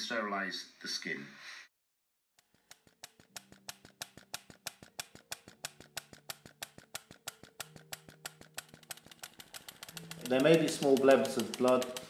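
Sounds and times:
injector gun rapid clicks: 2.4 - 12.0
soft background music: 3.4 - 12.0.

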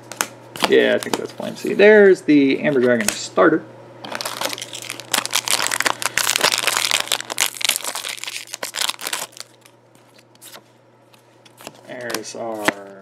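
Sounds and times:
foil wrapper crinkling: 4.1 - 10.6.

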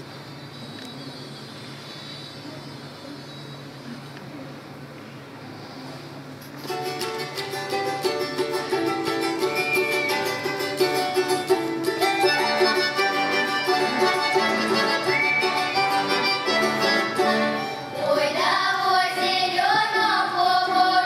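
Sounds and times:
strummed string instrument: 6.7 - 18.1
accordion chords: 6.8 - 20.2.

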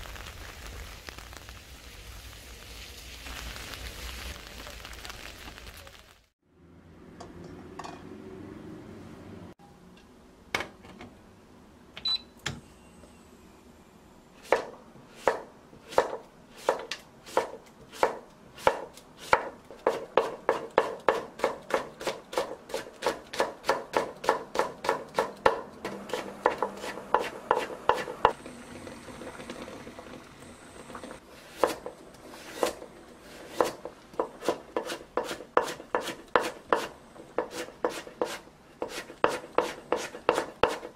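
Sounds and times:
knife chopping on wooden board: 14.5 - 28.3, 31.6 - 31.9, 33.5 - 40.9.

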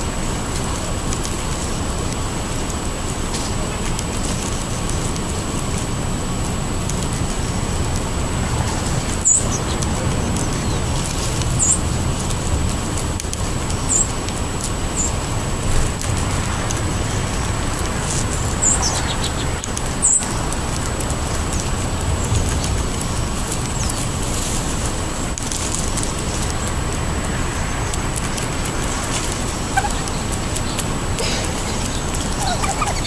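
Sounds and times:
outdoor background rumble: 0.0 - 33.0
high bird chirps: 18.4 - 20.4, 31.8 - 33.0.

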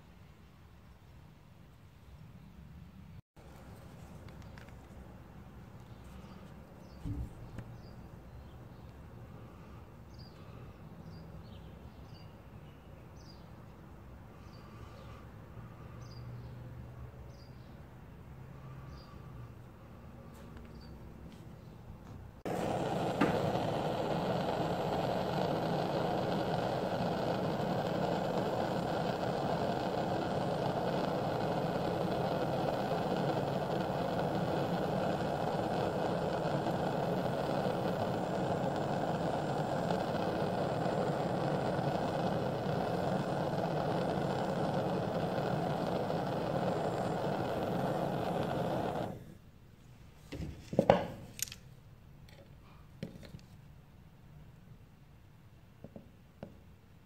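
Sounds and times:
blowtorch flame roaring: 22.4 - 49.4.

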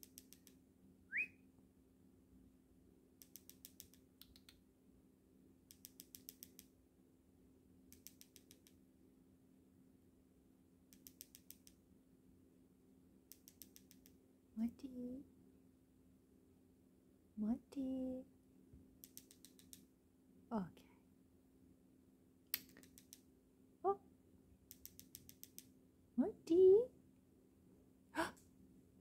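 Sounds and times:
cockatiel whistle: 1.1 - 1.4.

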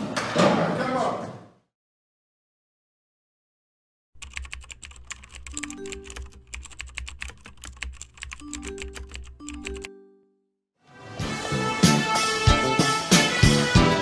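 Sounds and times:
keyboard keys clicking: 4.2 - 10.0.

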